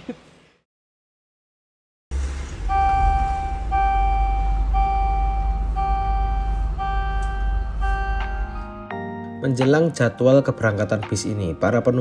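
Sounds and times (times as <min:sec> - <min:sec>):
warning buzzer beeping: 0:02.1 - 0:08.6
diesel engine idling: 0:02.1 - 0:08.7.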